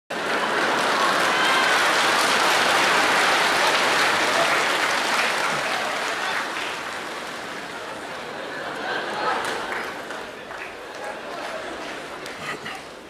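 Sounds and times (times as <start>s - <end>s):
audience applauding: 0.1s - 13.0s.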